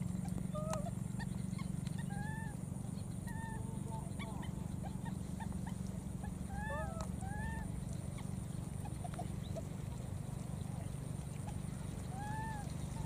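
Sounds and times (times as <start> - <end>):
steady low hum: 0.0 - 13.0
baby monkey squeaking calls: 0.5 - 2.6.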